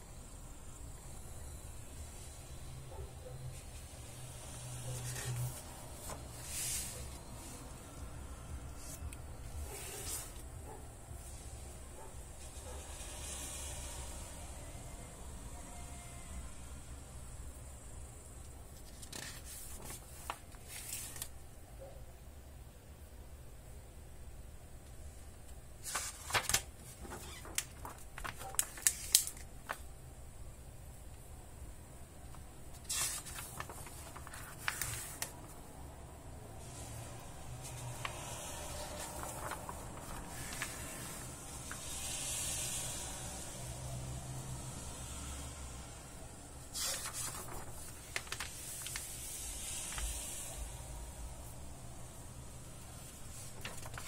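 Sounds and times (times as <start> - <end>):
faint steady hiss: 0.0 - 54.0
paper crackling: 3.5 - 7.7, 8.8 - 10.5, 18.8 - 21.3, 25.8 - 29.9, 32.3 - 35.6, 36.6 - 42.8, 46.7 - 50.2, 53.0 - 54.0
page turning swish: 4.5 - 7.2, 8.8 - 10.4, 18.8 - 21.3, 25.8 - 29.8, 32.8 - 35.5, 37.6 - 43.0, 46.7 - 50.4, 53.3 - 54.0
plastic sheet crinkling: 25.8 - 29.8, 32.8 - 35.6, 37.6 - 42.1, 46.8 - 50.2, 53.3 - 54.0.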